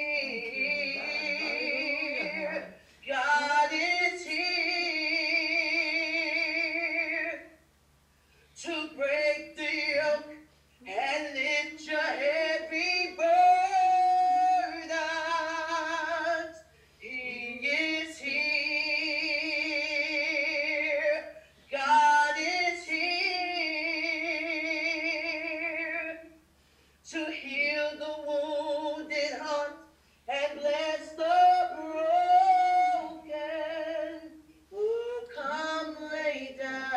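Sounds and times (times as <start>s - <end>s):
woman singing unaccompanied: 0.0s - 7.6s, 8.6s - 26.4s, 27.0s - 36.9s
singer breathing: 2.8s - 3.0s, 16.6s - 17.0s, 26.5s - 27.0s, 29.9s - 30.3s.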